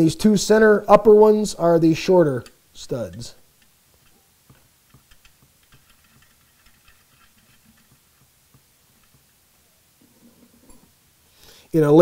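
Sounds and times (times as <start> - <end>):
metal studs clicking: 2.4 - 9.4.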